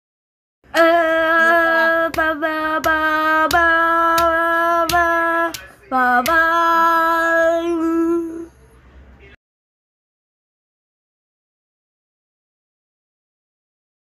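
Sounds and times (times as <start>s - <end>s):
voice singing a jingle: 0.8s - 8.6s.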